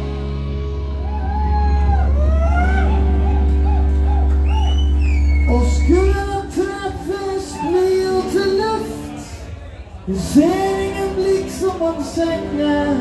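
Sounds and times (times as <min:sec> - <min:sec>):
live band with electric guitars: 0:00.0 - 0:13.0
man singing: 0:05.5 - 0:13.0.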